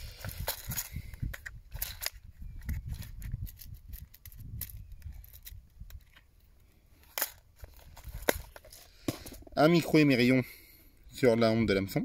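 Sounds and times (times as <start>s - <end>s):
wind rumble on microphone: 0.0s - 6.2s.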